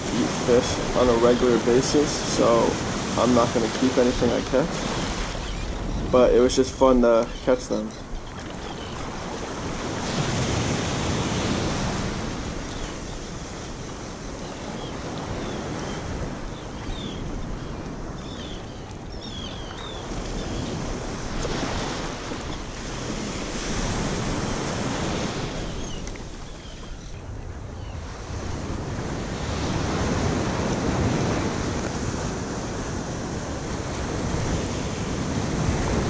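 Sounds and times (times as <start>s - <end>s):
surf breaking on beach: 0.0s - 7.9s, 8.5s - 18.2s, 28.2s - 36.0s
seabirds chirping: 0.0s - 30.3s
wind on microphone: 0.0s - 36.0s.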